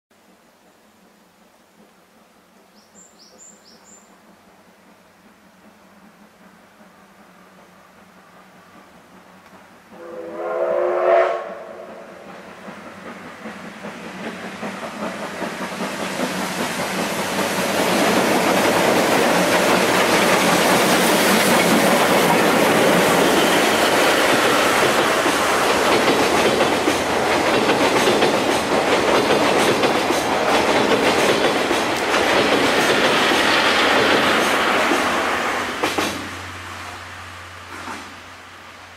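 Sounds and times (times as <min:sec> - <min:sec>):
train wheels clattering on bridge: 0:01.7 - 0:10.4, 0:11.3 - 0:37.0, 0:37.6 - 0:38.3
steam whistle: 0:09.9 - 0:12.2.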